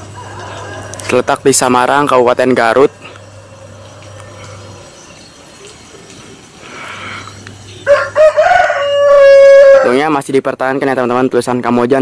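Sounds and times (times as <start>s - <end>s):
rooster crowing: 0.0s - 1.4s, 7.8s - 10.0s.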